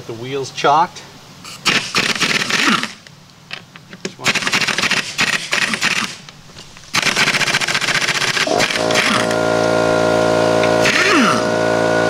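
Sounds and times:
air compressor running: 0:01.5 - 0:03.0, 0:04.2 - 0:06.2, 0:06.9 - 0:12.0
air impact wrench hammering: 0:01.5 - 0:03.0, 0:04.2 - 0:06.2, 0:06.9 - 0:12.0.

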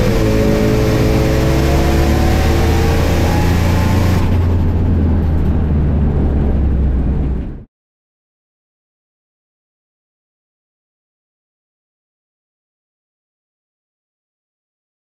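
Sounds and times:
car engine at full throttle: 0:00.0 - 0:07.7.

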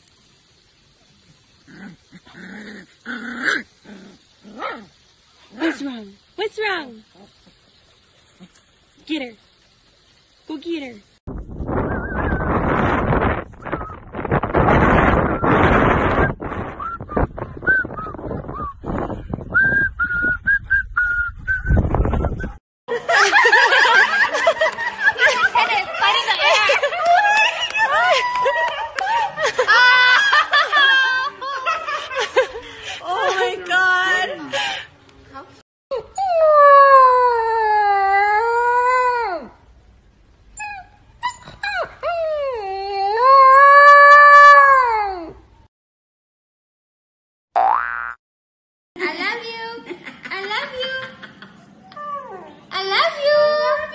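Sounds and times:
wind on microphone: 0:11.3 - 0:22.6.

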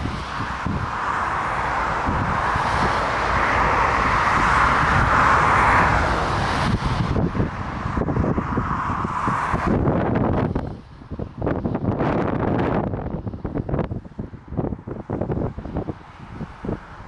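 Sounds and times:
jet engines hissing: 0:00.0 - 0:11.8
wind buffeting microphone: 0:00.0 - 0:17.0.

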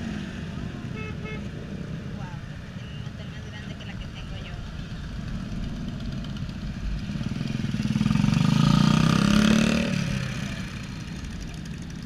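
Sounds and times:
motorcycle engine passing: 0:05.0 - 0:12.0.

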